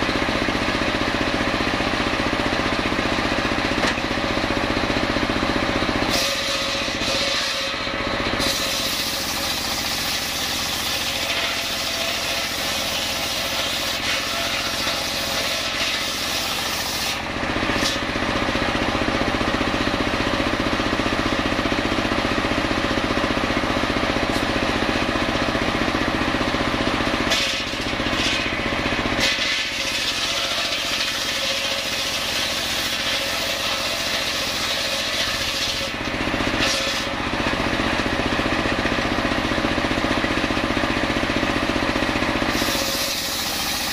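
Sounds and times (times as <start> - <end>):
circular saw cutting log: 0.0 - 43.9.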